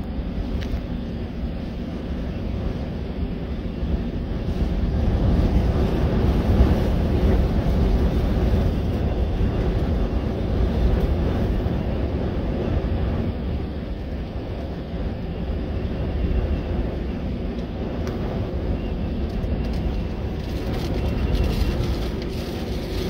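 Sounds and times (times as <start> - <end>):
vehicle driving on gravel road: 19.0 - 23.0.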